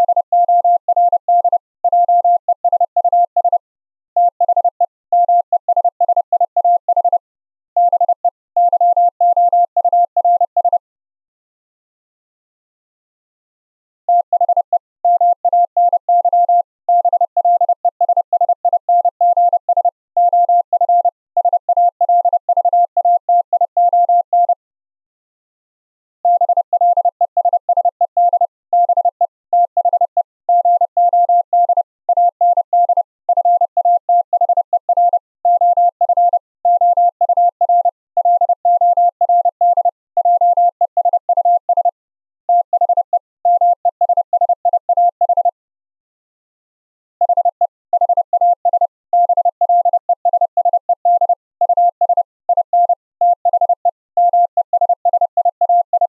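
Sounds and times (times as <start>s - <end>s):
morse code tone: 0.0s - 3.6s, 47.2s - 56.0s.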